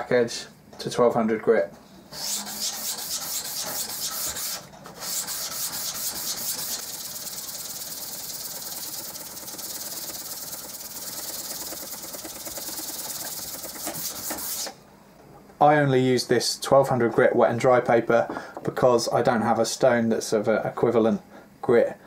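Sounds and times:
chisel scraping on sandpaper: 2.2 - 6.9, 13.3 - 14.7.

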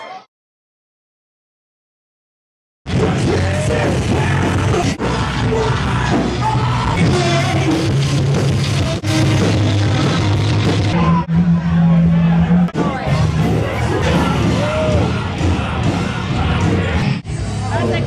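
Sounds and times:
person singing and yelling: 2.9 - 11.3, 12.9 - 17.2
hard rock band playing: 2.9 - 18.0.

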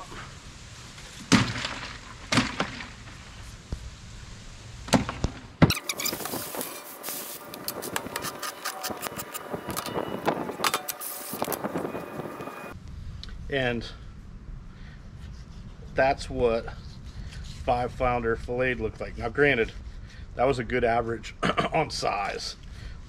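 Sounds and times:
clicks and scrapes: 5.7 - 10.0.

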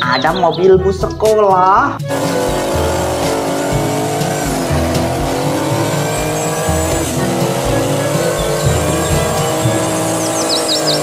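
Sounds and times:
racing car engine revving: 2.1 - 11.0
tyre squeals: 5.1 - 11.0.

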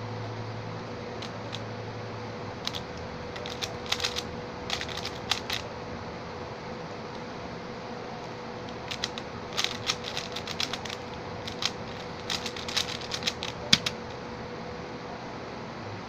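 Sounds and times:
faint steady hum: 0.0 - 16.0
puzzle cube clicking: 2.6 - 5.6, 8.2 - 14.2.

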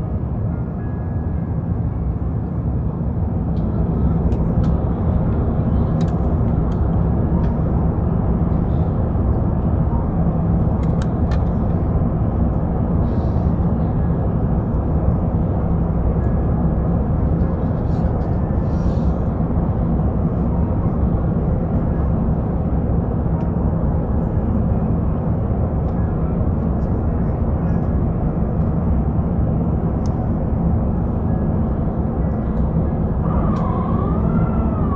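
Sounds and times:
airplane cabin airflow rush: 0.0 - 34.9
jet engine noise: 0.0 - 34.9.

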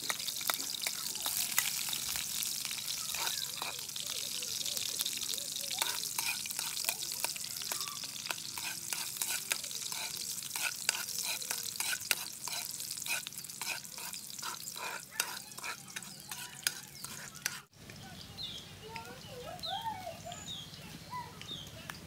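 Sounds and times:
metal spatula scraping wok: 0.0 - 4.0, 5.8 - 17.7
food sizzling in oil: 0.0 - 17.7.

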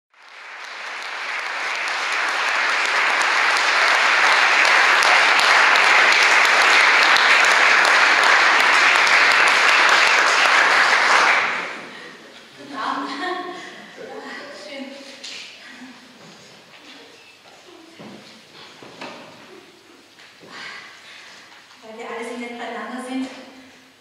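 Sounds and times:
audience clapping: 0.1 - 12.2.

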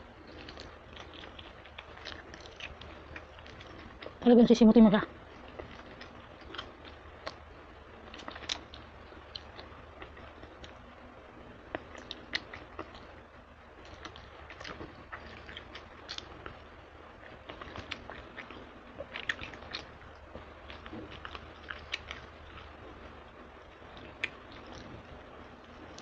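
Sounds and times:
wet chewing and sucking: 0.0 - 4.2, 5.3 - 7.4, 8.1 - 10.8, 11.7 - 13.1, 13.8 - 22.8, 23.9 - 25.0.

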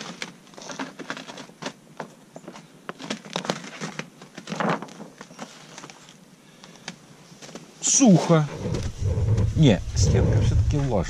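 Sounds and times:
plastic film peeling and crinkling: 0.0 - 6.2.

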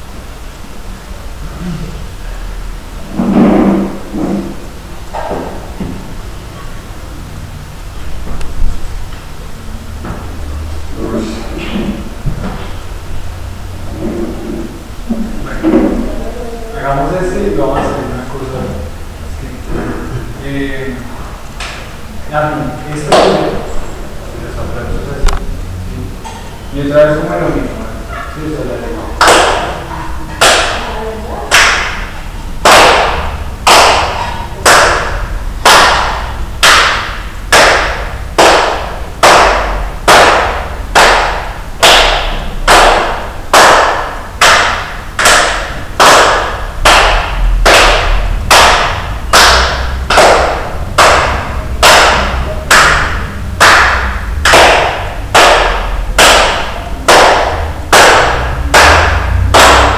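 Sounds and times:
sharp knocks echoing in a room: 3.1 - 6.2, 13.9 - 16.1, 23.0 - 23.6, 29.2 - 59.9.

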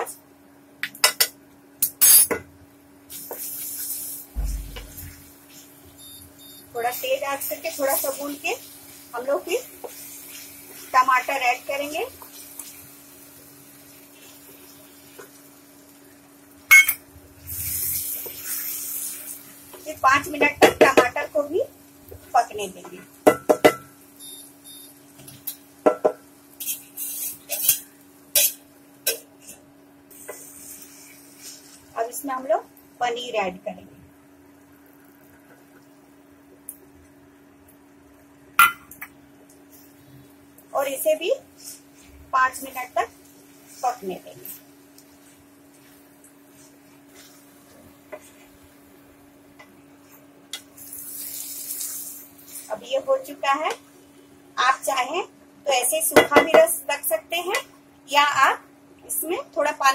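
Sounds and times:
induction cooktop hum: 0.0 - 59.9
hissing sizzle from pan: 2.6 - 38.4, 39.3 - 55.9
metal spatula knocking on pan: 4.4 - 5.1, 23.2 - 23.9
pan thud: 4.4 - 5.2
short beep: 6.0 - 6.7.

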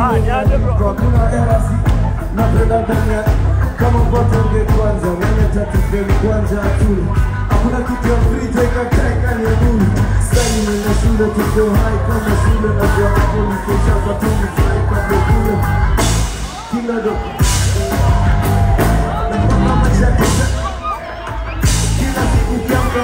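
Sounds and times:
man singing into a microphone: 0.0 - 17.8, 19.1 - 23.0
heavy bass backing music: 0.0 - 23.0.

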